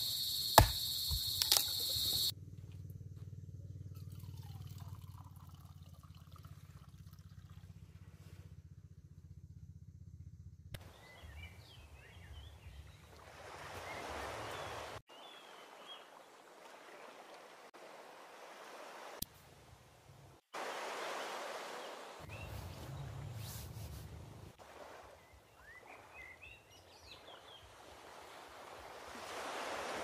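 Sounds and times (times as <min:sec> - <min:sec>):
water trickling into a mug: 0:04.0 - 0:07.6.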